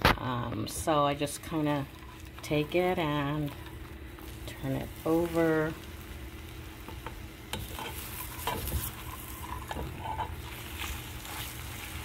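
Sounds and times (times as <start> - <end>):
eggs sizzling in oil: 0.2 - 12.0
spoon scraping pan: 1.2 - 5.7, 6.8 - 12.0.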